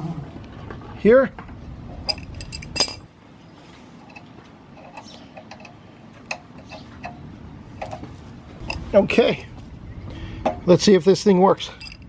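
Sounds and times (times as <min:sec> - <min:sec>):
clicks of handling pump fittings: 0:04.0 - 0:07.2, 0:07.8 - 0:08.8.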